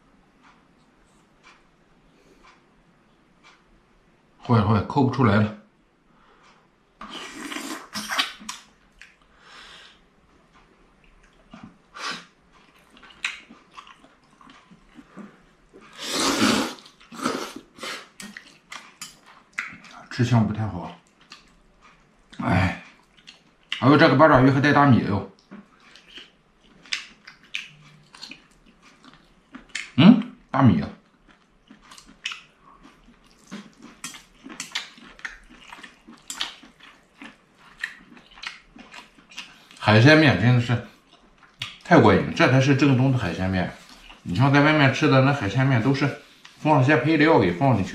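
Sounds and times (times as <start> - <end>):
man chewing: 6.2 - 20.2, 20.8 - 23.8, 25.4 - 39.8, 40.8 - 41.9, 43.7 - 44.4, 45.8 - 46.7
noodles slurped: 15.8 - 19.1.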